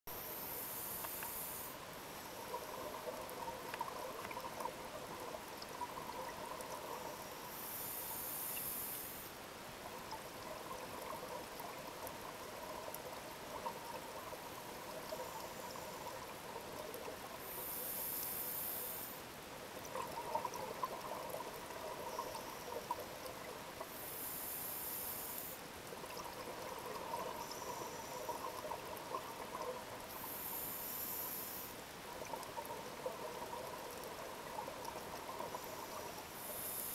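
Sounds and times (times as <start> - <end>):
regulator hiss on inhale: 0.1 - 3.2, 6.8 - 9.4, 17.3 - 19.3, 23.8 - 25.7, 27.1 - 28.8, 30.0 - 31.9, 35.3 - 36.9.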